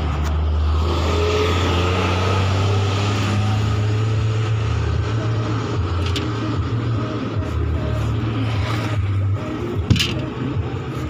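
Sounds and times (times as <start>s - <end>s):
vehicle engine idling: 2.6s - 11.0s.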